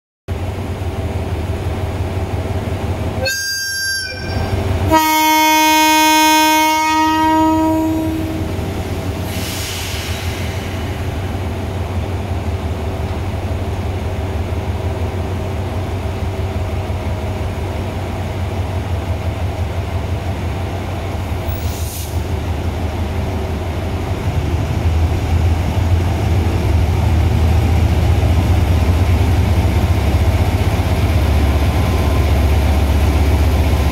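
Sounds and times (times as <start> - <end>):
diesel engine rumble: 0.3 - 3.2, 7.2 - 33.9
locomotive horn blasts: 3.2 - 8.6.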